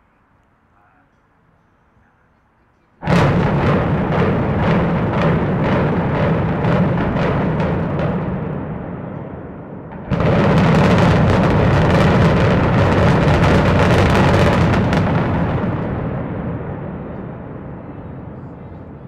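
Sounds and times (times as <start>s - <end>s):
crackle of explosive reports: 3.0s - 19.0s
heavy rumble: 3.0s - 19.0s
loud blast: 3.0s - 19.0s.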